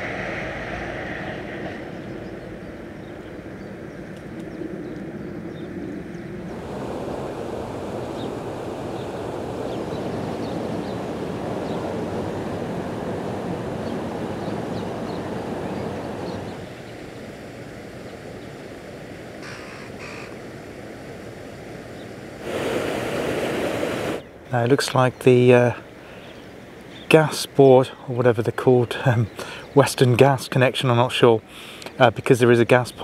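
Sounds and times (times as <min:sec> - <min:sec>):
water rushing through gap: 0:06.5 - 0:17.8, 0:22.3 - 0:24.3.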